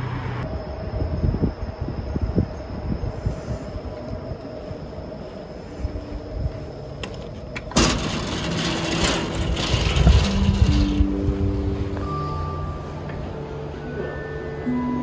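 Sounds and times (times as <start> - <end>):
low steady rumble: 0.1 - 14.0
wooden sliding door rattling: 7.0 - 11.9
sustained music notes: 8.5 - 15.0.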